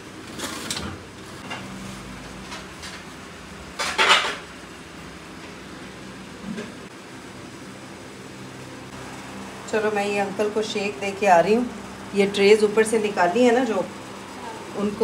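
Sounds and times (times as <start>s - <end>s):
dishes clinking and clattering: 3.7s - 4.5s.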